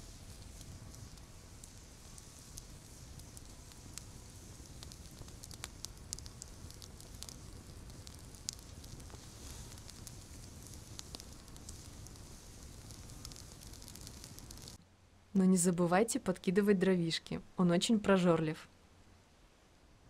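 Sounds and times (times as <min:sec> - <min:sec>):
campfire crackling: 0:00.0 - 0:14.8
fire popping: 0:00.0 - 0:14.8.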